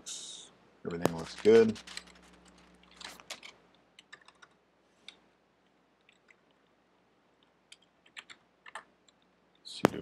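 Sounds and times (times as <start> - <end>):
keyboard keystrokes: 1.1 - 5.2.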